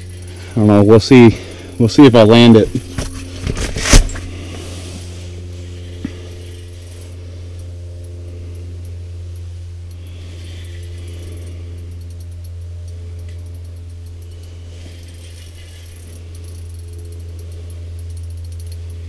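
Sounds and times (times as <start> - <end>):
steady low hum: 0.0 - 19.0
fishing reel clicking: 9.9 - 19.0.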